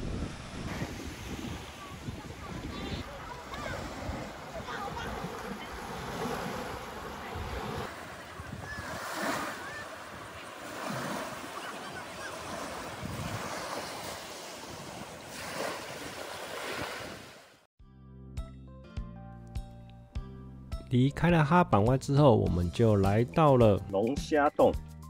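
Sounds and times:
wind on microphone: 0:00.0 - 0:17.3
sea waves breaking on sand: 0:00.0 - 0:17.7.

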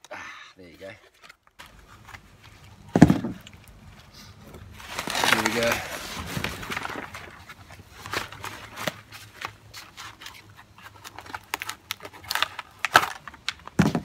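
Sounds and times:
foam packaging clicks and rustles: 0:04.5 - 0:14.0.

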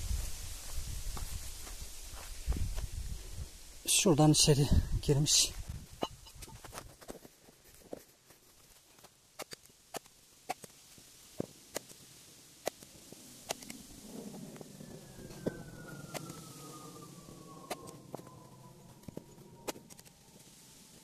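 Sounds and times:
thin whine falling in pitch: 0:13.5 - 0:21.0.

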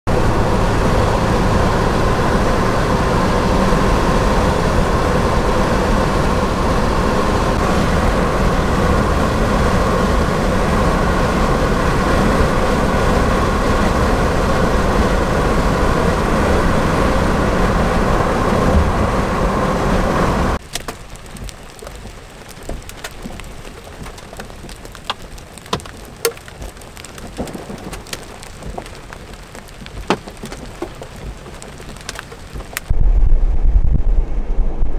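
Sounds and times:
rain hiss: 0:00.1 - 0:33.0
road and engine noise: 0:00.1 - 0:34.9
hailstones ticking and splashing: 0:20.6 - 0:32.9.

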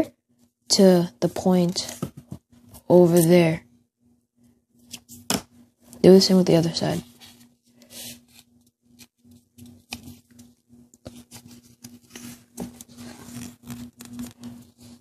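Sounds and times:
paper rustling and crinkling: 0:07.1 - 0:15.0
paper crease pressed flat: 0:07.2 - 0:15.0.

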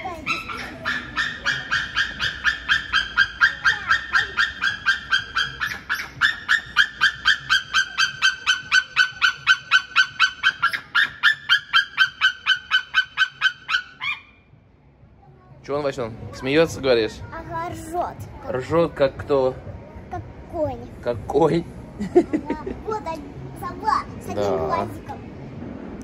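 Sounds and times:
bird calling rapid high notes: 0:00.3 - 0:14.4.

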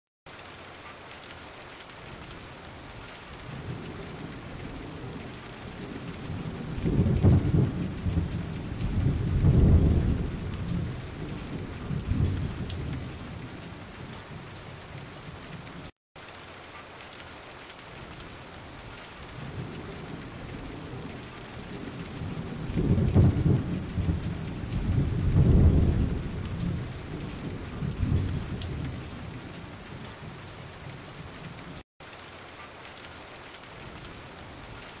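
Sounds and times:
heavy rain: 0:00.3 - 0:35.0
thunder rolling: 0:03.5 - 0:14.2, 0:19.4 - 0:30.4.

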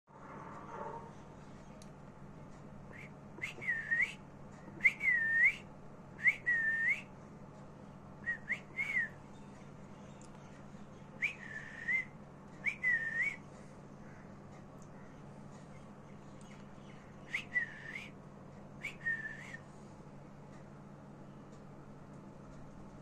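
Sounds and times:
low steady hum: 0:00.1 - 0:23.0
short whistles dipping and rising: 0:17.3 - 0:18.2, 0:18.8 - 0:19.7.

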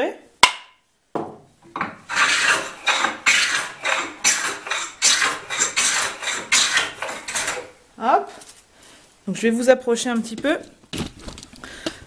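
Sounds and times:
hand plane shaving wood: 0:01.8 - 0:07.8.

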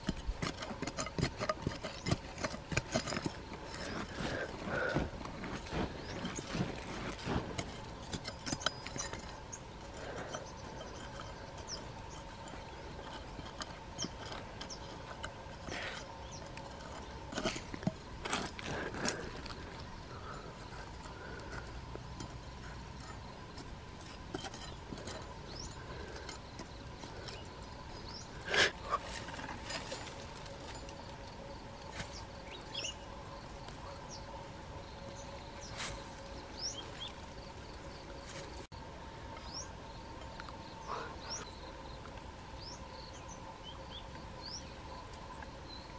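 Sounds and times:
hands digging in soil: 0:00.0 - 0:19.9
faint steady hum: 0:00.0 - 0:45.9
grass pulled from earth: 0:02.8 - 0:09.2.

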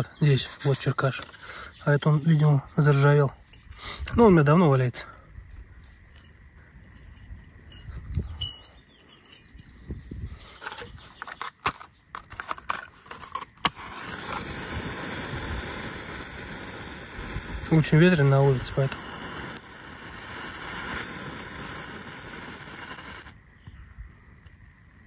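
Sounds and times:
wind buffeting microphone: 0:06.5 - 0:11.2, 0:14.4 - 0:20.7
matches scraping on striker: 0:10.5 - 0:15.2
match striking and flaring: 0:10.6 - 0:23.4.

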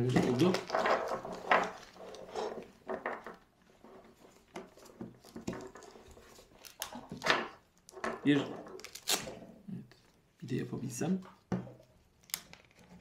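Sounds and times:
handling knocks and rustles: 0:00.0 - 0:09.5.

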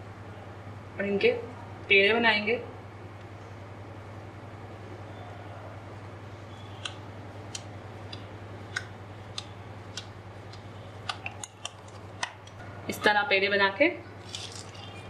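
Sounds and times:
steady low hum: 0:00.0 - 0:15.0
sticky clicks of dough rolling: 0:06.8 - 0:12.6.

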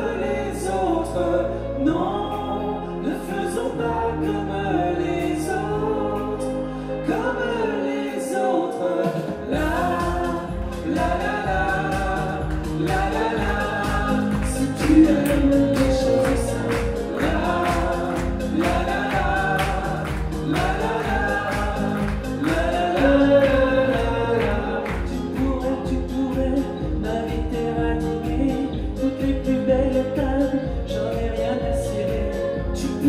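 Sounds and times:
woman and man singing duet: 0:00.0 - 0:33.0
backing music with beat: 0:09.0 - 0:33.0.

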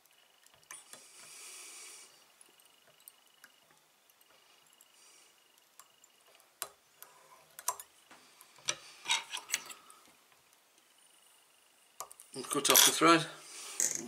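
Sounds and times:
small tools clicking and tapping: 0:05.6 - 0:10.9.

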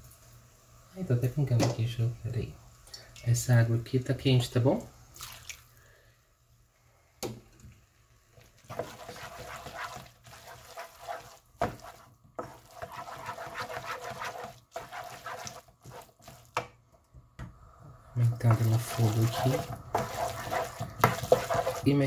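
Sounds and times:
wooden spoon scraping wet pan: 0:08.6 - 0:16.6, 0:18.2 - 0:22.0.

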